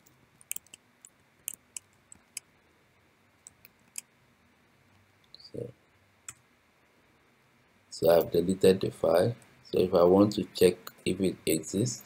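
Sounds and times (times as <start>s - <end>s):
keyboard keys clicking: 0.0s - 0.8s.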